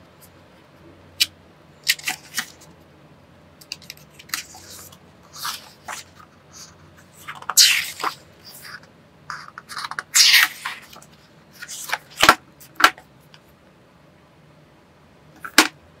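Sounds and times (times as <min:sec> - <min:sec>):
paper pages rustling: 0:03.7 - 0:08.8, 0:09.6 - 0:12.9.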